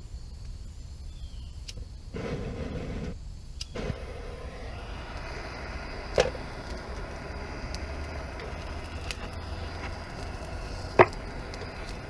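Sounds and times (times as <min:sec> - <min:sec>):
steady low rumble: 0:01.9 - 0:12.0
sharp clicks: 0:03.0 - 0:12.0.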